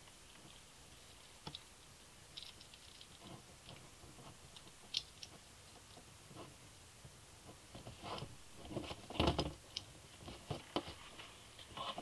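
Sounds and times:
small metal parts clicking: 0:02.3 - 0:03.2.

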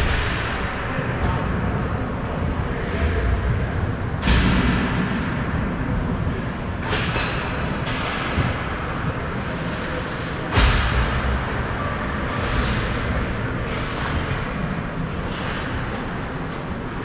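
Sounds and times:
thud: 0:10.5 - 0:11.5.

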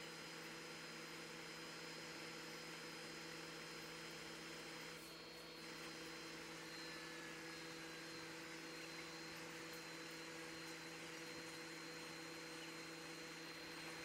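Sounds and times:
compressor humming: 0:05.0 - 0:14.0.

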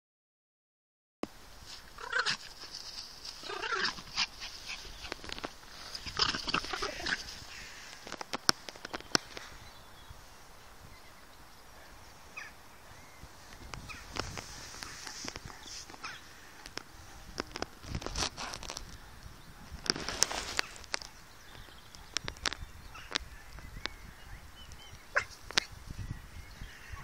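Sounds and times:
small dogs barking: 0:02.0 - 0:02.7, 0:25.1 - 0:25.8.

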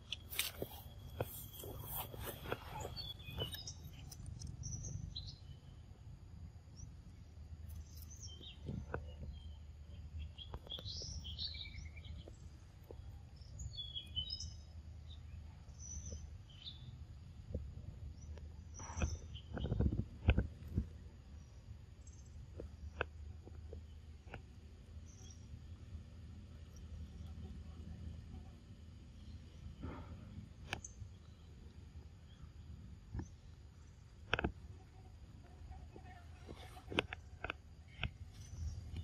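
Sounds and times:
birds chirping: 0:00.0 - 0:06.0, 0:06.7 - 0:17.1, 0:18.0 - 0:23.1, 0:36.0 - 0:39.0.

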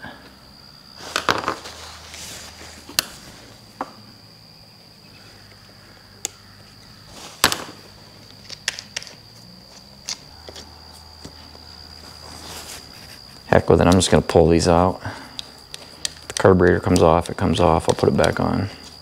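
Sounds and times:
faint high whine: 0:00.0 - 0:19.0.

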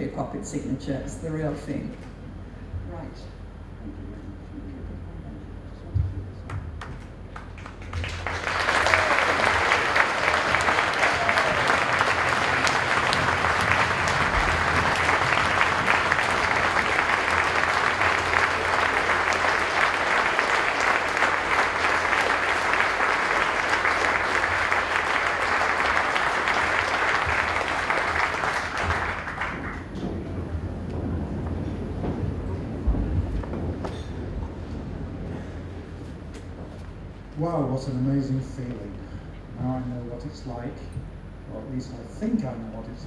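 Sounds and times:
large audience clapping: 0:06.5 - 0:34.1.

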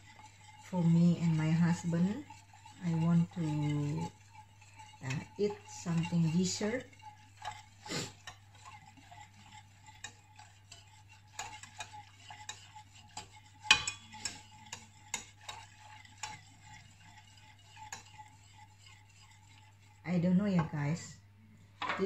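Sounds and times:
metal spoon clinking in saucepan: 0:10.0 - 0:16.4.

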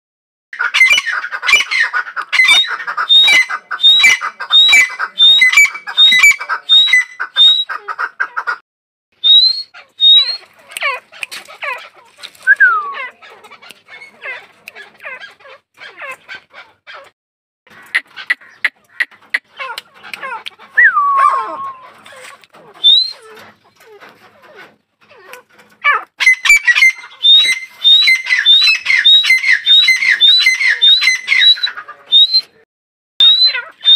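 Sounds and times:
bird shrill repeated calls: 0:00.6 - 0:07.8, 0:09.2 - 0:13.2, 0:17.8 - 0:23.4, 0:25.1 - 0:32.6, 0:33.2 - 0:33.9.

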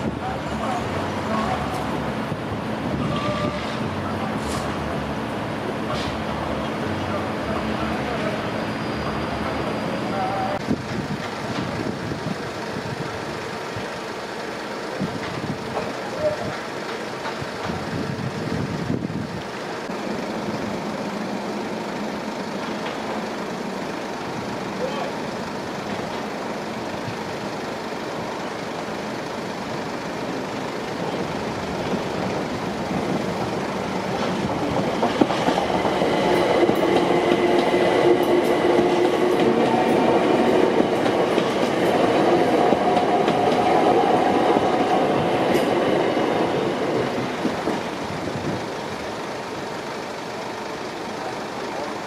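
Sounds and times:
wheels clicking over rail joints: 0:10.6 - 0:18.8, 0:25.8 - 0:52.0.

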